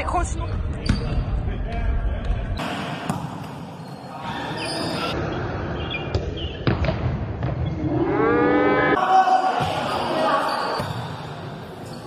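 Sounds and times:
ball bouncing on court floor: 3.0 - 3.5, 6.1 - 7.7
sneaker squeaks: 3.1 - 5.2, 9.7 - 12.0.

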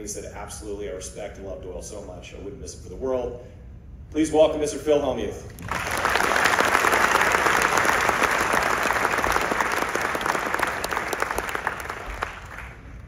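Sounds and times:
audience applauding: 5.6 - 13.0.

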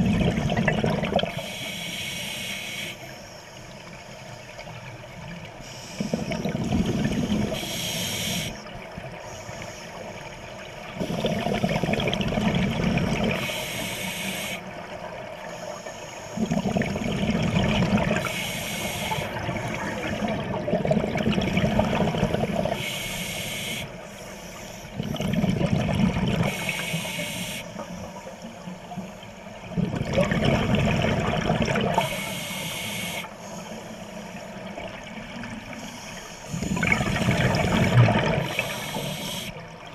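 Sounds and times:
exhaled bubbles rushing: 0.0 - 1.4, 6.0 - 7.6, 11.0 - 13.4, 16.4 - 18.3, 19.1 - 22.8, 25.0 - 26.7, 29.6 - 32.1, 36.5 - 38.9
regulator inhalation hiss: 1.3 - 4.3, 7.2 - 11.9, 13.4 - 16.6, 18.2 - 20.3, 22.7 - 25.0, 26.5 - 29.6, 31.9 - 34.9, 35.6 - 36.9, 37.6 - 39.7.

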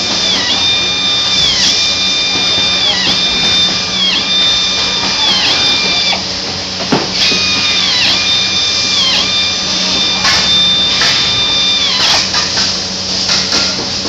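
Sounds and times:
power screwdriver whining: 0.0 - 6.3, 7.1 - 12.7
low factory hum: 0.0 - 14.0.

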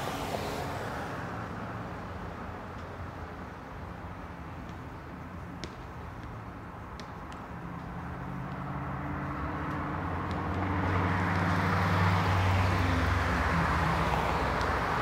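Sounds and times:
car driving past: 8.3 - 15.0.

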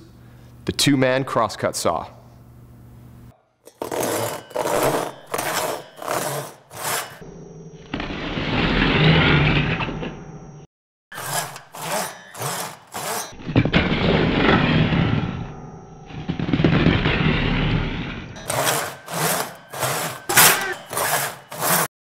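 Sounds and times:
saw rasping through shoe: 3.7 - 7.2, 11.1 - 13.4, 18.4 - 21.9
slow grinding rasp: 3.7 - 7.2, 7.9 - 9.8, 11.1 - 15.1, 16.6 - 21.9.

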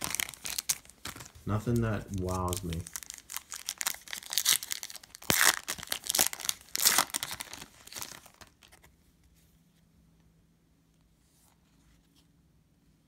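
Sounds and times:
foil wrapper crinkling: 0.0 - 8.9.

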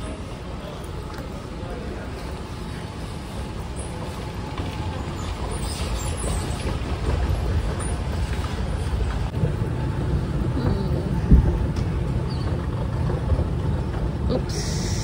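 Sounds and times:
moving walkway rumble: 0.0 - 15.0
escalator rumble: 3.9 - 15.0.

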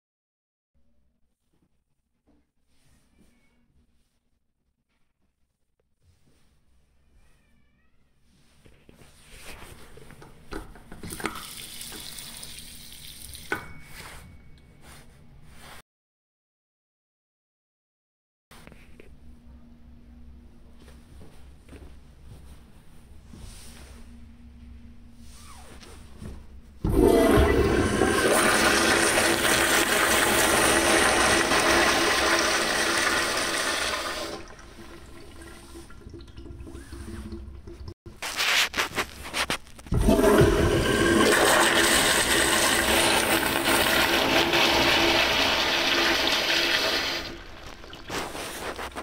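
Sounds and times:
toilet flushing: 10.6 - 13.5, 26.8 - 38.0, 39.9 - 49.0.

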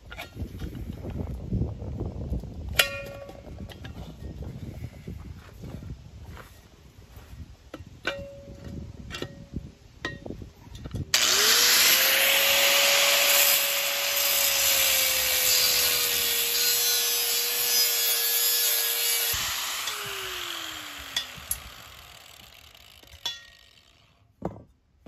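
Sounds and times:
angle grinder cutting steel: 11.2 - 24.1.

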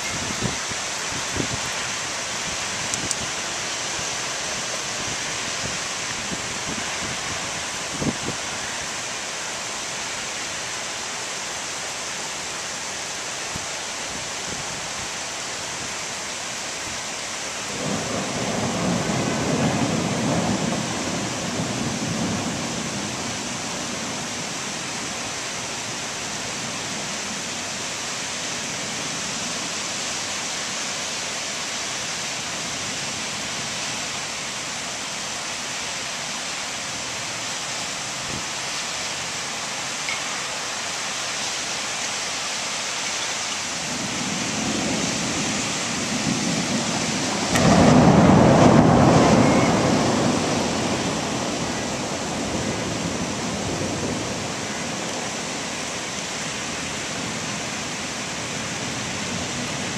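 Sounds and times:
heavy rain downpour: 0.0 - 59.9
thunder rumbling: 17.7 - 23.4, 43.8 - 54.7.

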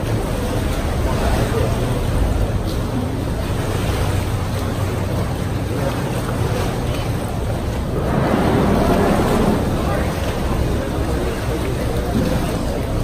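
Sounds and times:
boat motor running: 0.0 - 13.0
water sloshing against rocks: 0.0 - 13.0
wind buffeting microphone: 4.6 - 13.0.

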